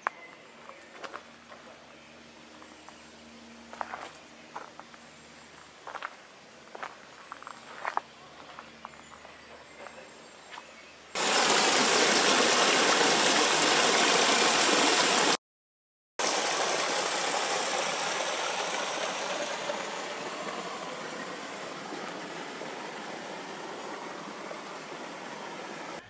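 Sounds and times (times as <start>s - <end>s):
waterfall rushing into pool: 11.2s - 15.4s, 16.2s - 26.0s.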